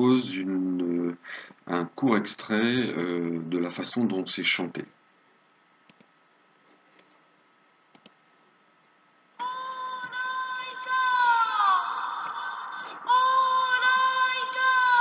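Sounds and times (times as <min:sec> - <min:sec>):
soft clicks: 0:05.4 - 0:06.2, 0:07.9 - 0:08.2
high voice singing a long note: 0:09.4 - 0:15.0.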